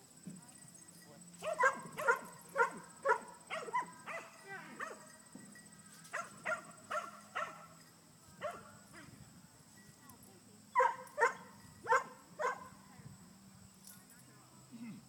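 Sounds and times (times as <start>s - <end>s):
dog yipping: 1.4s - 5.0s, 6.1s - 7.6s, 10.8s - 12.6s.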